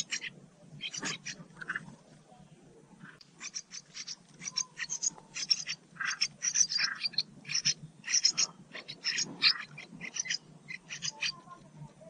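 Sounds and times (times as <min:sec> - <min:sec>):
nestlings cheeping: 0:03.4 - 0:11.6.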